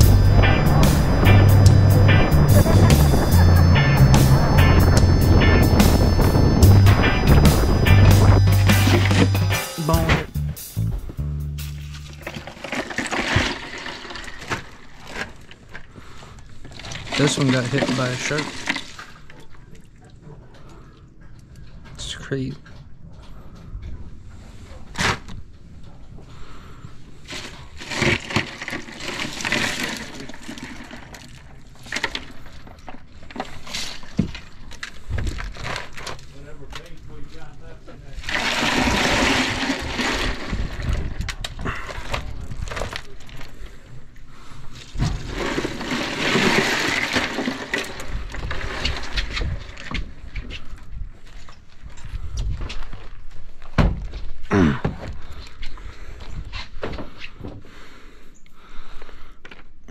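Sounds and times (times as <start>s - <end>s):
crushed ice crunching and rattling: 5.9s - 10.1s, 11.7s - 19.6s, 27.2s - 53.7s.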